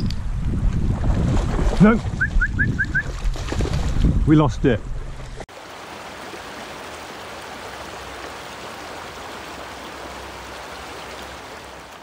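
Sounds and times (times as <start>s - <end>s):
stream rushing over stones: 5.5s - 12.0s.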